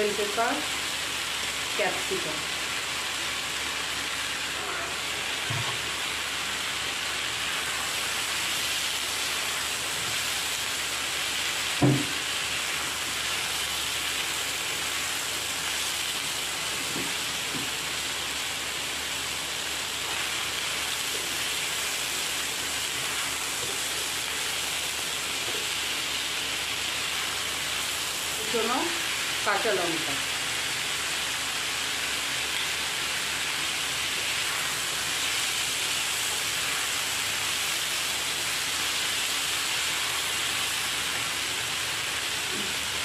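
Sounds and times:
vegetables sizzling in a pan: 0:00.0 - 0:43.0
wooden spatula knocking pan: 0:11.8 - 0:12.2.

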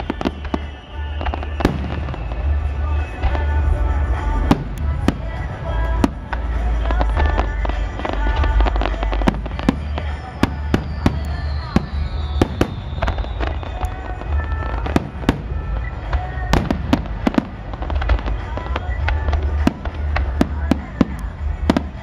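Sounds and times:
firework whistle falling in pitch: 0:00.0 - 0:04.2, 0:08.3 - 0:19.2
fireworks bangs and crackles: 0:00.0 - 0:22.0
low rumble: 0:01.2 - 0:22.0.

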